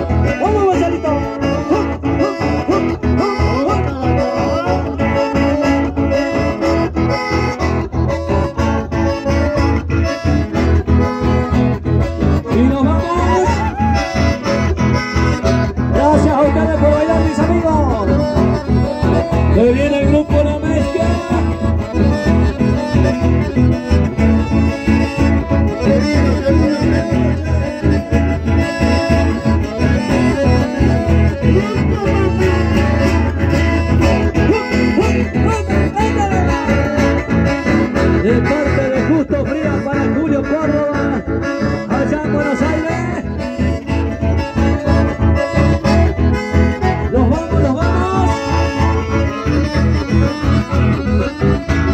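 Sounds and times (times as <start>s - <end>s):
accordions: 0.0s - 51.9s
acoustic guitar: 0.0s - 51.9s
band playing dance music: 0.0s - 51.9s
person singing: 12.4s - 14.4s.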